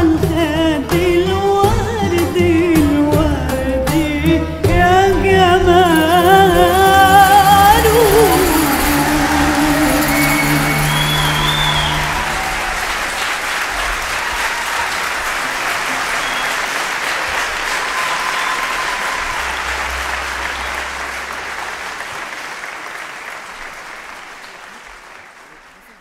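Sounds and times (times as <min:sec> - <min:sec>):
ensemble held chord: 0:05.6 - 0:13.3
audience applauding: 0:05.9 - 0:26.0.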